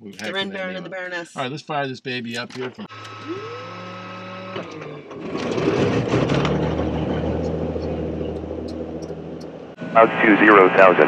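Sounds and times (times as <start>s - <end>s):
starter whine: 2.2s - 11.0s
aircraft piston engine idling: 6.9s - 11.0s.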